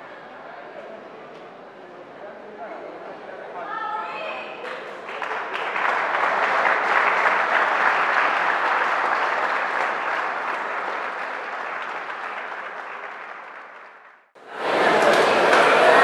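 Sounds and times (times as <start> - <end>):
crowd applauding: 4.6 - 16.0.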